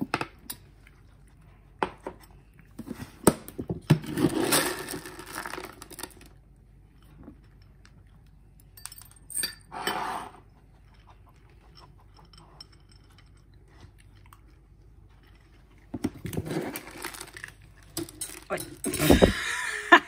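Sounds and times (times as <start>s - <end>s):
dry dog kibble rattling: 14.5s - 19.2s.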